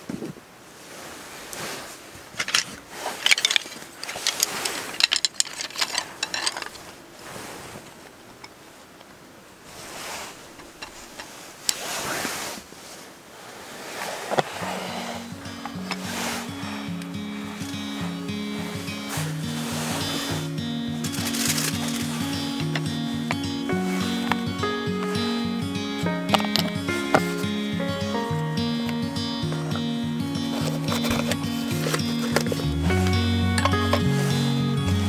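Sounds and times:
rustling: 0:00.1 - 0:09.0, 0:09.6 - 0:35.0
background music: 0:14.6 - 0:35.0.

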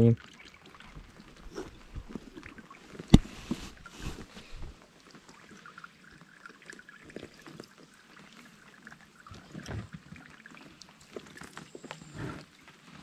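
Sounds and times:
water dripping and trickling: 0:00.0 - 0:13.0.

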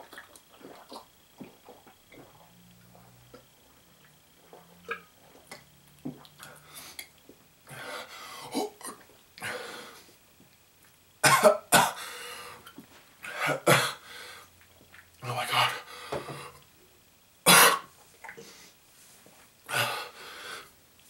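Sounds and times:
man swallowing: 0:04.4 - 0:07.4.

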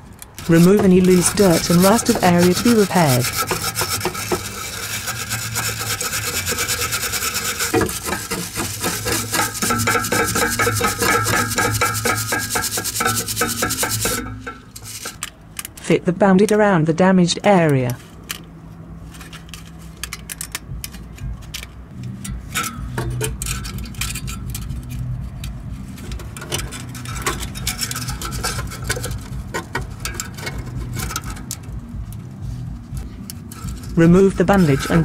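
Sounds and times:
metallic crinkling and clinking: 0:00.0 - 0:16.6, 0:17.6 - 0:35.0
low steady hum: 0:00.0 - 0:35.0.

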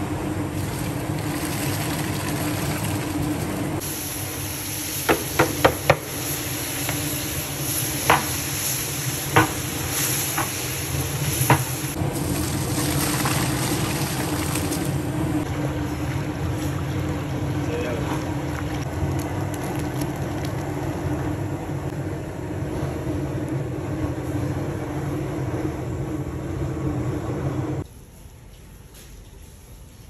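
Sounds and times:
wooden paddle knocking on pot: 0:09.4 - 0:09.6.

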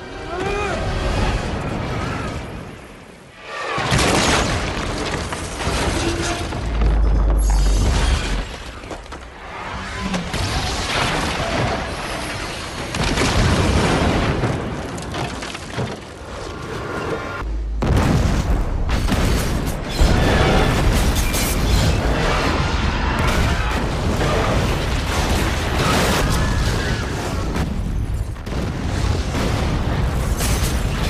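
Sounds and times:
film score: 0:00.0 - 0:31.0
train explosion with low rumble: 0:17.8 - 0:21.2.

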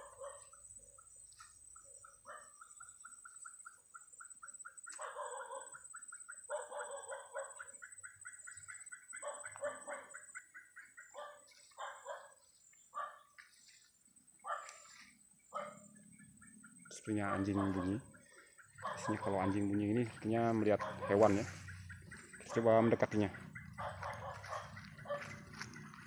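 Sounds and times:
faint dog barking: 0:00.0 - 0:00.6, 0:02.2 - 0:02.7, 0:04.9 - 0:05.9, 0:06.5 - 0:07.8, 0:09.2 - 0:10.3, 0:11.1 - 0:13.4, 0:14.4 - 0:16.0, 0:16.9 - 0:26.0.

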